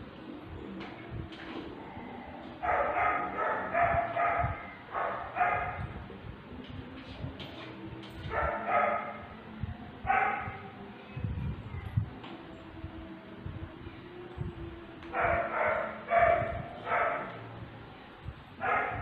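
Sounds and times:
dog barking: 2.6s - 5.9s, 8.3s - 9.3s, 10.1s - 10.6s, 15.2s - 17.4s, 18.6s - 19.0s.

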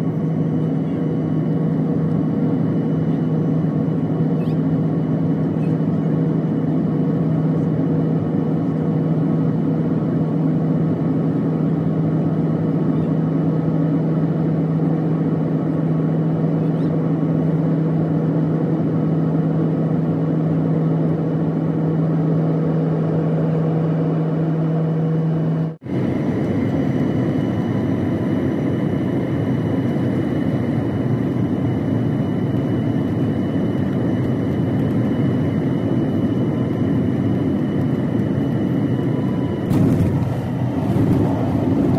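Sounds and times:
constant low hum: 0.0s - 41.9s
jet engine rumble: 0.0s - 41.9s
airflow rush: 39.7s - 41.9s.

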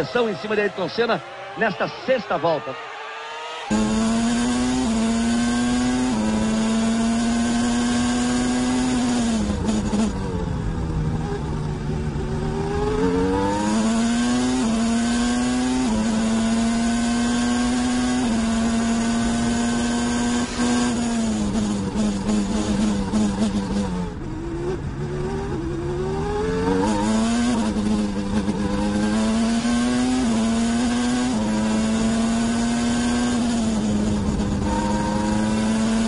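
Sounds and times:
racing car engine at high revs: 0.0s - 36.0s.

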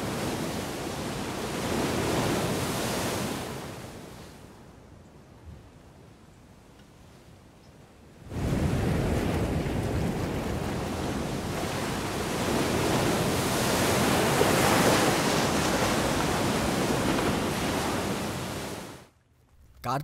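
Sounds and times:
surf washing onto sandy beach: 0.0s - 4.1s, 8.2s - 19.0s.

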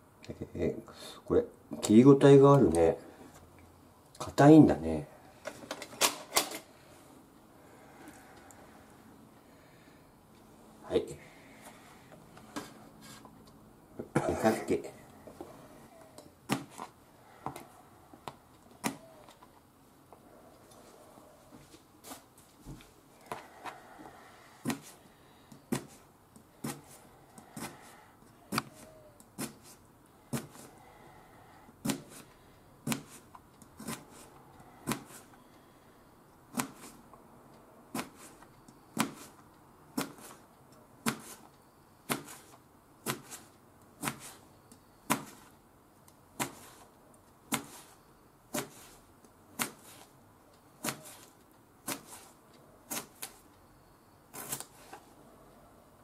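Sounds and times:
knife slicing cucumber: 27.6s - 30.7s, 33.8s - 34.3s, 42.1s - 44.4s, 47.5s - 49.0s, 50.8s - 52.3s.

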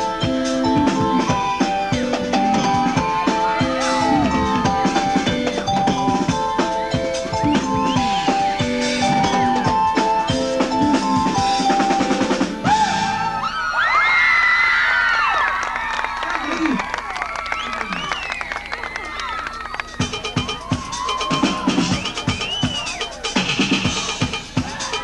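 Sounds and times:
crowd screaming and cheering: 0.0s - 11.5s, 12.6s - 25.0s
held keyboard notes: 0.0s - 13.1s
drum kit beating: 0.0s - 13.4s, 19.6s - 25.0s.

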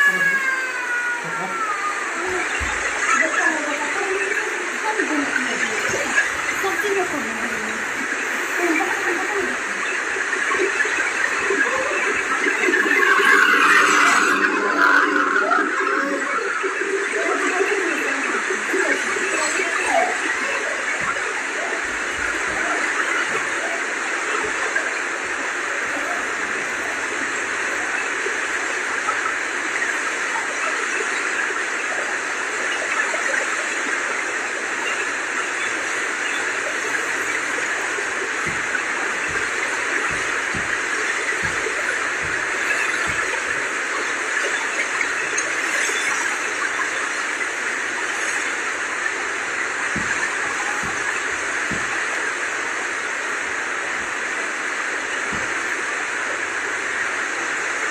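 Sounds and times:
turbulent water rushing: 0.0s - 57.9s.

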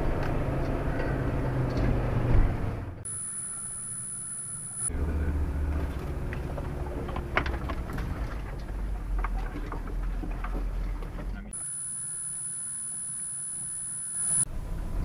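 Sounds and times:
off-road vehicle engine running: 0.0s - 11.9s
faint high whine: 3.1s - 4.9s, 11.6s - 14.5s.

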